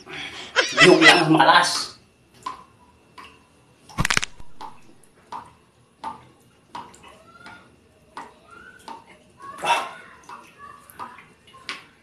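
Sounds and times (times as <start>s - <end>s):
wet eating clicks: 3.9s - 6.2s.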